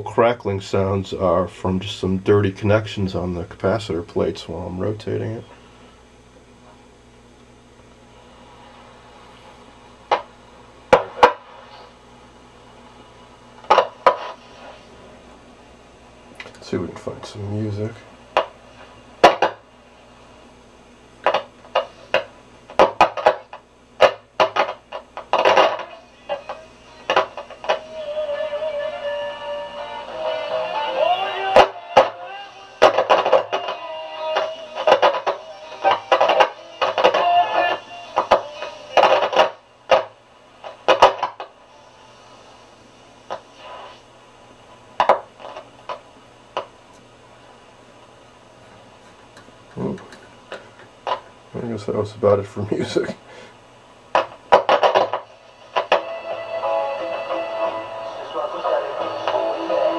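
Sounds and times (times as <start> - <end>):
faint hum: 0.0 - 59.9
radio loudspeaker crackling and popping: 8.3 - 12.0, 12.8 - 15.4, 16.4 - 20.1, 21.2 - 47.6, 49.0 - 53.3, 54.1 - 59.9
radio static: 10.9 - 12.0, 12.9 - 15.2, 16.7 - 19.7, 21.2 - 29.1, 29.7 - 44.1, 45.0 - 46.7, 51.0 - 53.2, 54.1 - 59.9
low hiss: 25.3 - 48.6.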